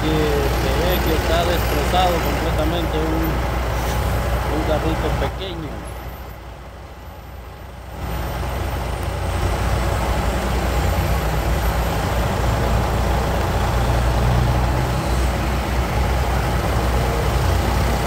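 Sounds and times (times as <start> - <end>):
heavy vehicle engines rumbling: 0.0 - 18.0
road noise hiss: 0.0 - 18.0.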